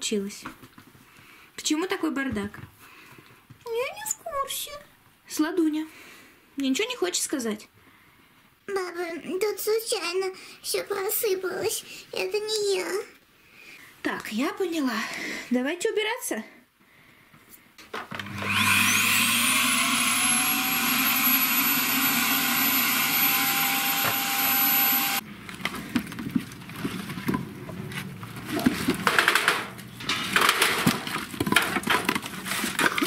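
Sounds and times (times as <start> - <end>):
vacuum cleaner motor whine: 18.1 - 25.2
knocks and clatter: 25.5 - 33.0.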